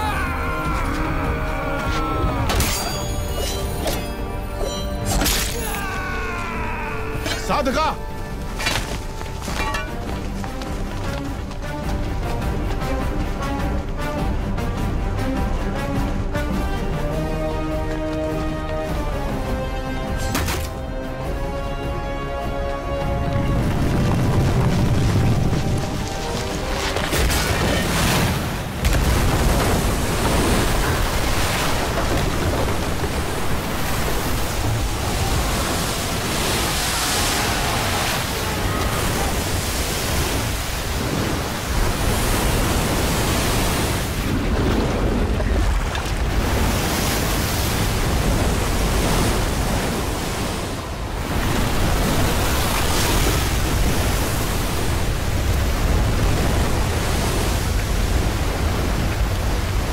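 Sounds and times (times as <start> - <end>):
roar of rushing water: 0.0 - 2.9, 20.8 - 59.9.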